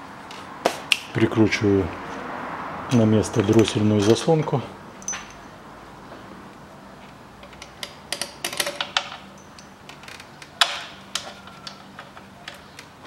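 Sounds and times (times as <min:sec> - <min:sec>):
metallic clicks of bolts and tool: 0:07.4 - 0:13.0.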